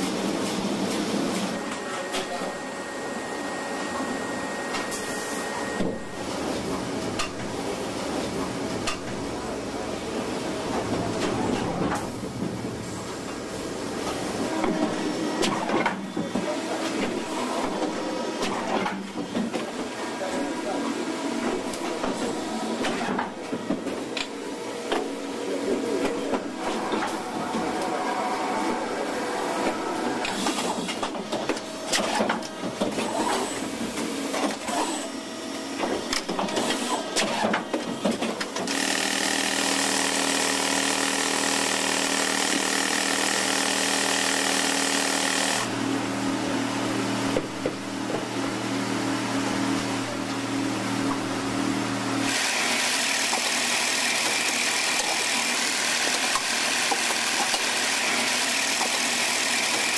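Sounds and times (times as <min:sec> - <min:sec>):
machine whir with whine: 0:01.5 - 0:07.2.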